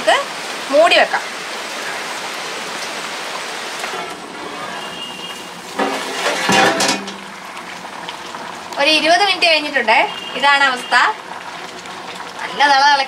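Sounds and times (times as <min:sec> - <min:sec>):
metal pot lid clanking: 0:03.8 - 0:04.6, 0:05.7 - 0:07.4.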